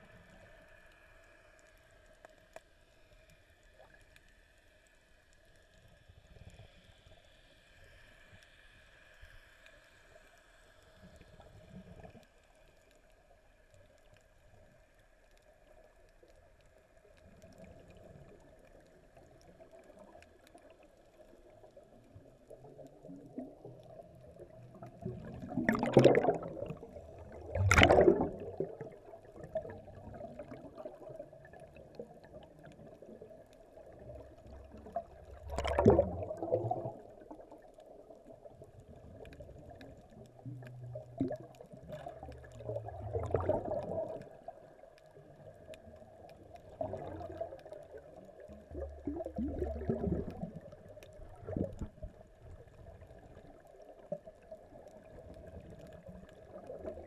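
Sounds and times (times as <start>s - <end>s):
underwater bubbling from diver exhalation: 23.1s - 33.2s, 34.0s - 37.6s, 39.0s - 44.5s, 46.6s - 52.2s.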